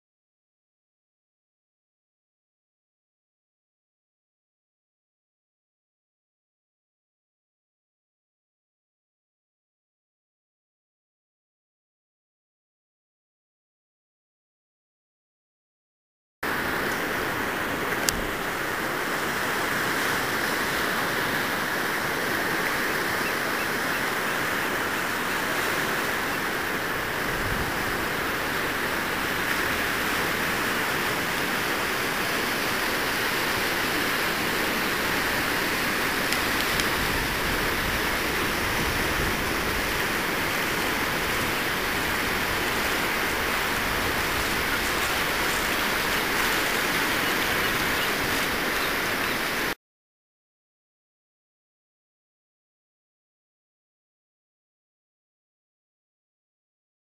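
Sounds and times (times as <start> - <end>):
ocean surf on sandy beach: 16.4 - 49.8.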